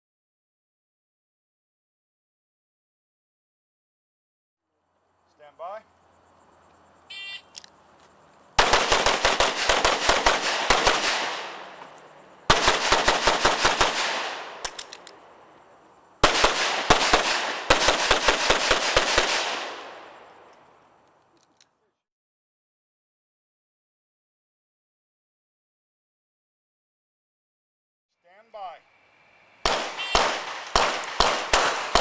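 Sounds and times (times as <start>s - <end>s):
pistol rapid shots echoing: 8.6s - 11.7s, 12.5s - 14.8s, 16.2s - 20.0s, 29.6s - 32.0s.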